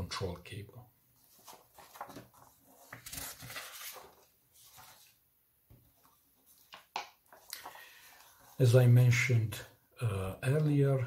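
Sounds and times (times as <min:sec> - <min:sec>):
paper rustling and crinkling: 0:01.2 - 0:05.2, 0:05.8 - 0:08.6.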